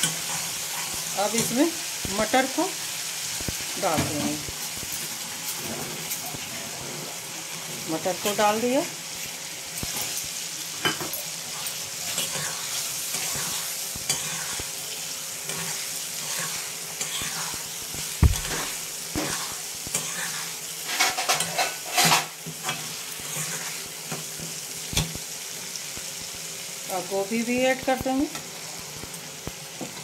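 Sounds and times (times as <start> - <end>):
spatula scraping a pan: 0.0 - 1.5, 11.5 - 24.6
peas sizzling in hot oil: 0.0 - 30.0
sharp knock: 18.2 - 18.7.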